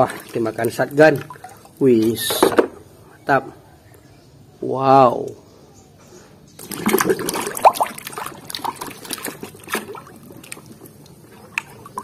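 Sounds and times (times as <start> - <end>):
water splashing in a tub: 0.0 - 2.5, 6.6 - 12.0.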